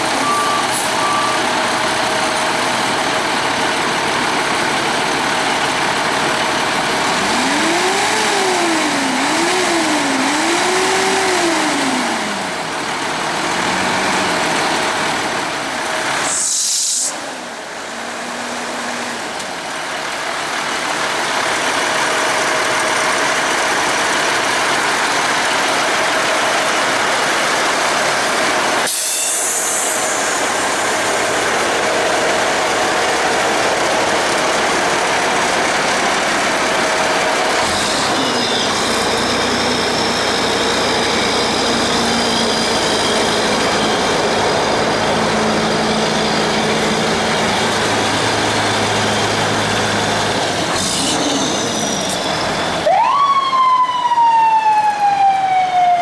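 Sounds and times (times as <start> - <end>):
diesel engine idling: 0.0 - 53.0
siren wailing: 51.0 - 56.0.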